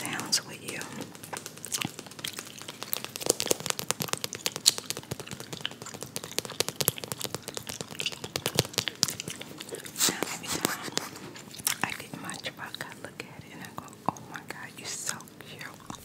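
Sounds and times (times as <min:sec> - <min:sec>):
nails clicking on plastic toy: 0:00.8 - 0:09.8.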